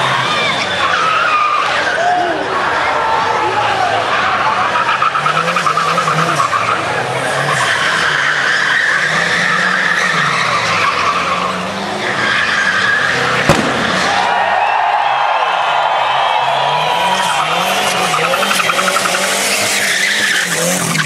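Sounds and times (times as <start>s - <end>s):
car engines revving: 0.0s - 21.0s
sharp crack: 13.4s - 14.7s
tyres squealing: 17.0s - 21.0s.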